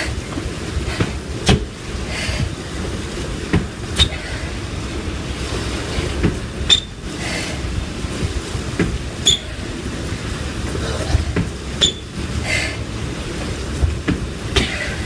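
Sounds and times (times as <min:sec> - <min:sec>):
steady low rumble: 0:00.0 - 0:15.0
heavy breathing: 0:02.0 - 0:02.6, 0:04.0 - 0:04.7, 0:07.1 - 0:07.8, 0:12.4 - 0:12.9.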